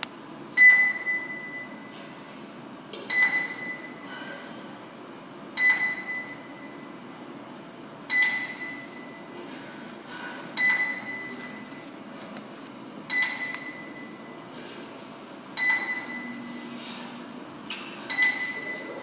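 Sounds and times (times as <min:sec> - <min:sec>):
patient monitor beeping: 0:00.6 - 0:02.2, 0:03.0 - 0:04.1, 0:05.6 - 0:07.0, 0:08.0 - 0:09.4, 0:10.5 - 0:12.0, 0:13.1 - 0:14.5, 0:15.5 - 0:16.8, 0:18.0 - 0:19.0.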